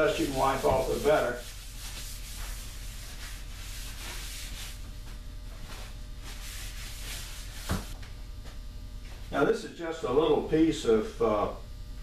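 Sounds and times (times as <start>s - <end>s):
cloth rubbing on wood: 0.0s - 8.0s
low electrical hum: 0.0s - 12.0s.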